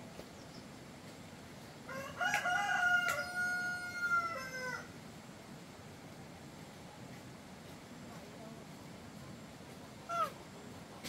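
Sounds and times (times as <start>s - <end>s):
rooster crowing: 1.9s - 4.9s.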